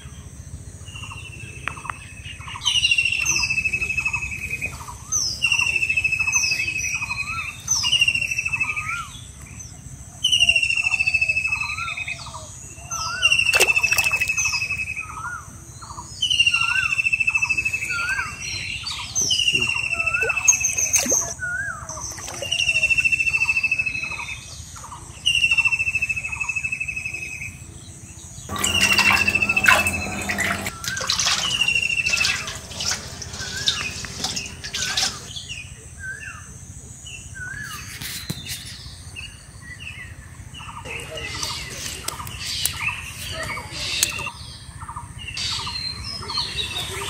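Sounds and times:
trilled call sliding down: 0:28.5 - 0:35.4.

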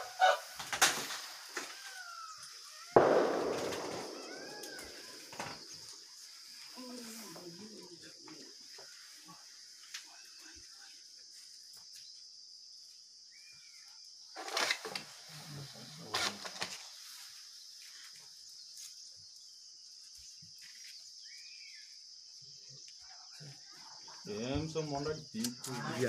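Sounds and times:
insect chorus drone: 0:00.0 - 0:26.0
short chirping call: 0:01.9 - 0:05.9.

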